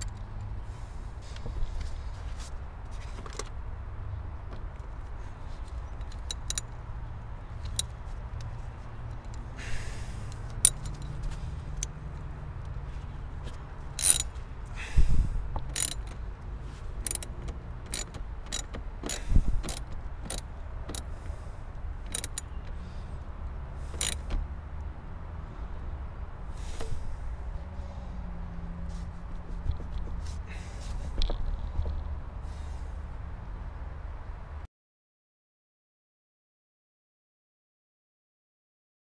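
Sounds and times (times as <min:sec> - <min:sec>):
metal clicks and knocks: 0:05.7 - 0:06.8, 0:10.3 - 0:12.0, 0:15.5 - 0:16.2, 0:17.0 - 0:21.1, 0:22.0 - 0:22.8, 0:24.0 - 0:24.4.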